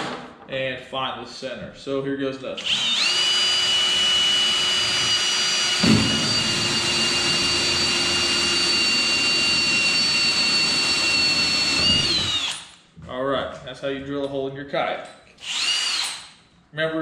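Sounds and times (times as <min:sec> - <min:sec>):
cordless drill motor whine: 0:02.6 - 0:12.8, 0:15.4 - 0:16.3
low thump: 0:05.8 - 0:06.8.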